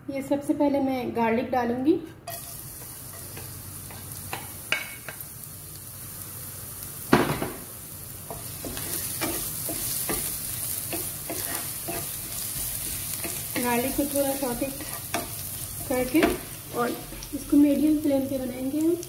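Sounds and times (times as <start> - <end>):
spatula stirring in pan: 2.2 - 5.2, 8.2 - 18.0
garlic sizzling in hot oil: 2.3 - 19.0.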